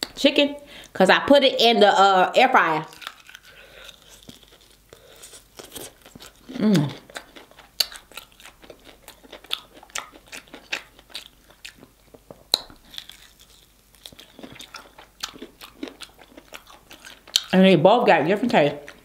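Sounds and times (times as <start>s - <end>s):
crunchy chewing: 2.7s - 17.6s.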